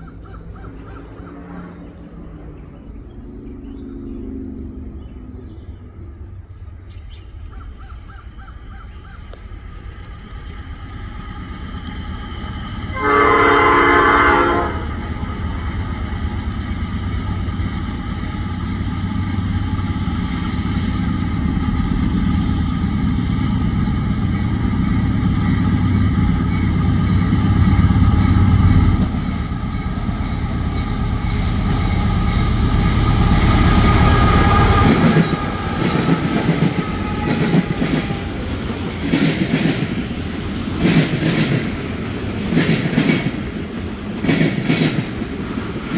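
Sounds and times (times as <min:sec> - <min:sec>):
diesel engine droning: 0:00.0 - 0:40.8
locomotive horn blast: 0:12.9 - 0:15.2, 0:29.2 - 0:38.7.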